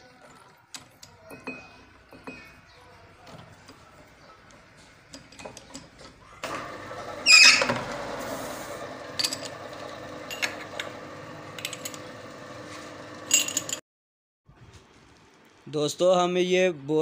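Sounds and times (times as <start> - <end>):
metal lathe running: 6.5 - 13.8.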